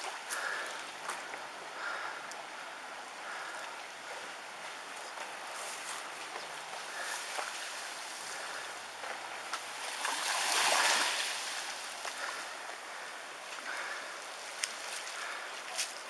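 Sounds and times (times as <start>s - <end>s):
water rushing along a street: 6.6s - 16.0s.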